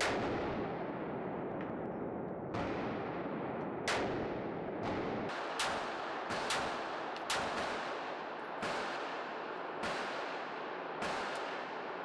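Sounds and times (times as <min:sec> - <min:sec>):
pistol shots echoing indoors: 0:03.8 - 0:12.0.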